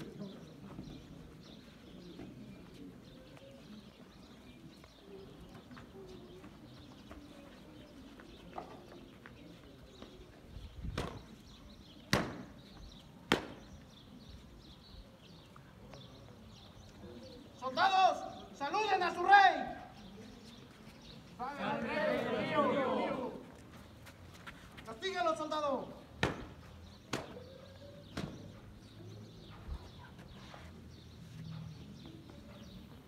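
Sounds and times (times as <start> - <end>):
whip cracking: 27.1 - 27.4.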